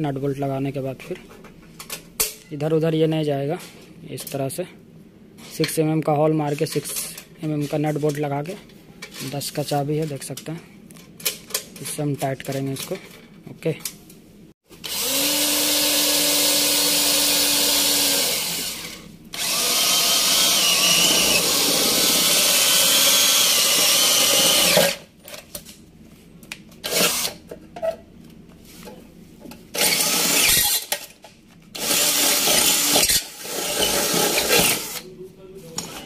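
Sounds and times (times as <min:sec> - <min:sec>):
electric drill boring through steel: 0:14.8 - 0:25.0, 0:29.8 - 0:30.8, 0:31.8 - 0:35.0
drill bit squealing: 0:19.4 - 0:24.8.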